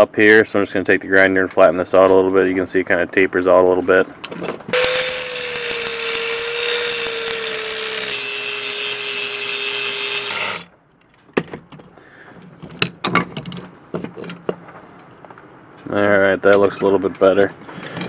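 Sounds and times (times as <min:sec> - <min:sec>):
angle grinder grinding steel: 0:04.7 - 0:10.7.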